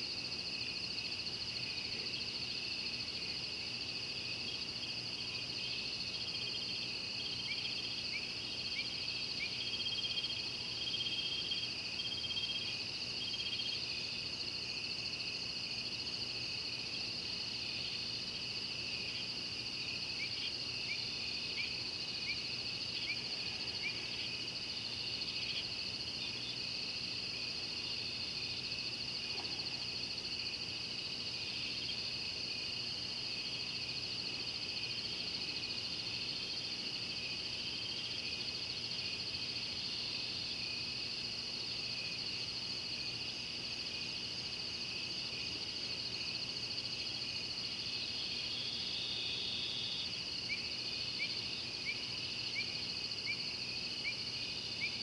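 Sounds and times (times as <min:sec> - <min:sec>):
chorus of night insects: 0:00.0 - 0:55.0.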